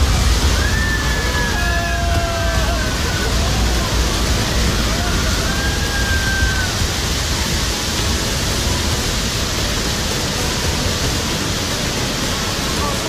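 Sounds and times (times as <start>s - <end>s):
flood water rushing: 0.0s - 13.0s.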